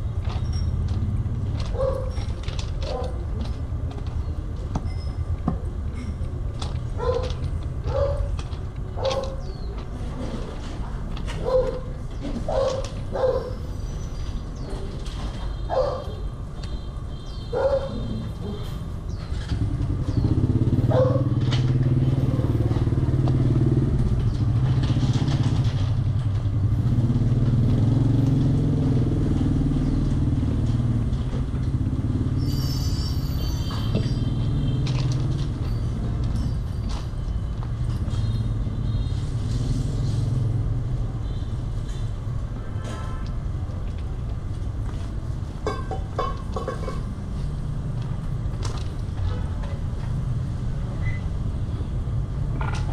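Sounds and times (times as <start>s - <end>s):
motor vehicle engine running: 0.0s - 12.6s, 19.1s - 41.0s.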